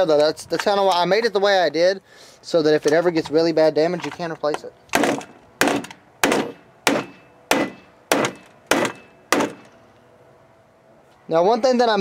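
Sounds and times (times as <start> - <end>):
hammer striking plywood and metal: 4.9 - 9.8.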